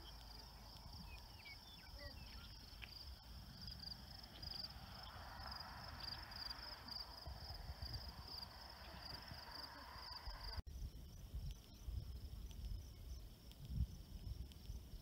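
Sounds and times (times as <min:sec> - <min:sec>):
bird chirps: 0:00.0 - 0:02.9
low wind rumble: 0:00.0 - 0:15.0.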